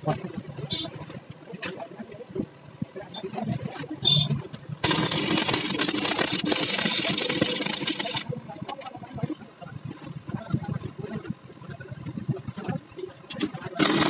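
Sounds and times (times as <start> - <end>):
welding arc crackling: 4.0 - 8.8, 13.4 - 14.0.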